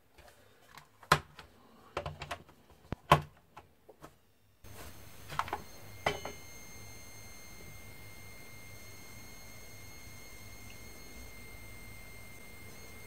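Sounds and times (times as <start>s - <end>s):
steady high-pitched beep: 5.0s - 13.0s.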